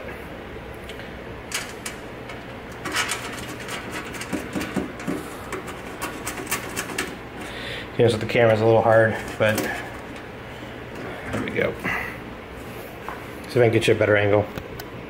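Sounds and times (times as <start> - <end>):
small parts clicking and knocking: 1.5 - 7.2.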